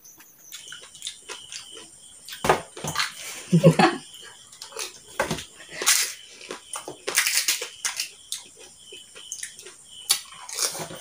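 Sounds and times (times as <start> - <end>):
crunching and slurping: 4.3 - 11.0
crisp shells cracking: 7.0 - 8.2.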